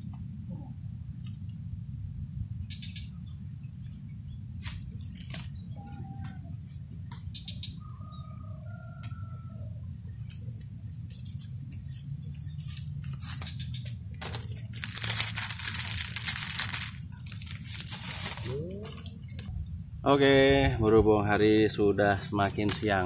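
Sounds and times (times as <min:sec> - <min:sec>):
faint bird chirps: 0:00.5 - 0:15.1
plastic bags crinkling: 0:14.2 - 0:19.5.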